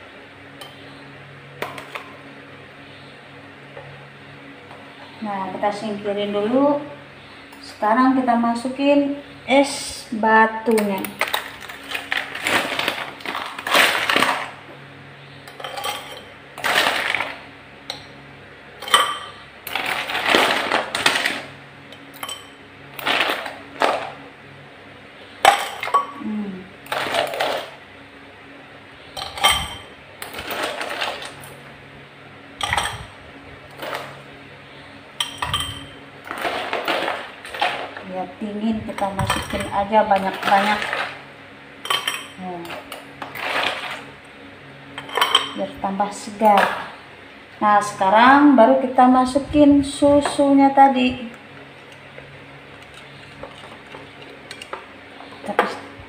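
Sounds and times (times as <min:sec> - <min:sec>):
ice cubes clinking in glass: 0:15.6 - 0:17.4, 0:18.8 - 0:21.4.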